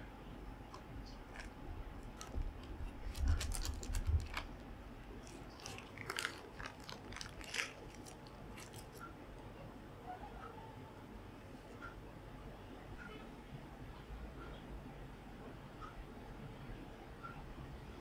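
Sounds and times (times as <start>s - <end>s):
plastic sheet crinkling: 1.0s - 4.6s, 5.2s - 9.0s.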